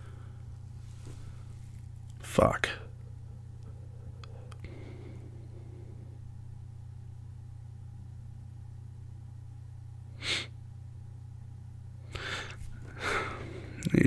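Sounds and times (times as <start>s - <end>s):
man breathing: 0.0s - 1.6s, 3.7s - 6.2s, 12.1s - 13.8s
low steady hum: 0.0s - 14.0s.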